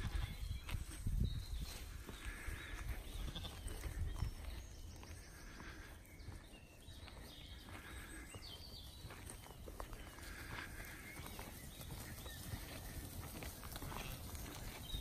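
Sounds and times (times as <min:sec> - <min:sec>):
sheep hoof steps on grass: 0:08.9 - 0:15.0.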